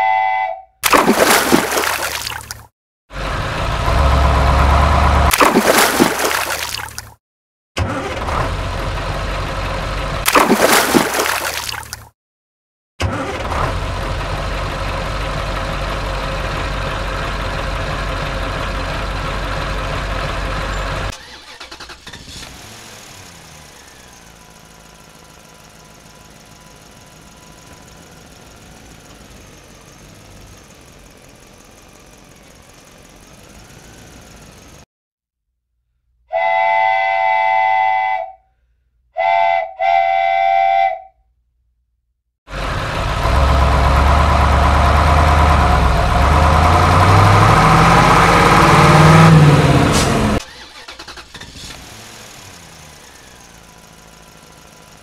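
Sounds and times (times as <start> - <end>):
toy train electronic whistle: 0.0 - 0.8, 36.3 - 38.4, 39.2 - 41.2.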